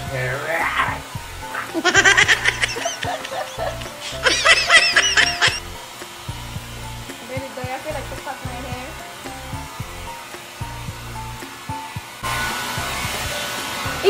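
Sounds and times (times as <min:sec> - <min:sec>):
background music: 0:00.0 - 0:14.0
hair dryer blowing: 0:00.0 - 0:14.0
high-pitched squeaky chirps: 0:02.0 - 0:05.6.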